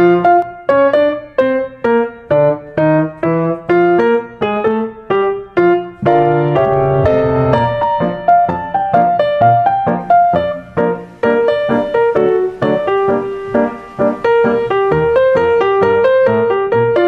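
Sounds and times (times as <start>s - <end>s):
keyboard piano melody: 0.0s - 17.0s.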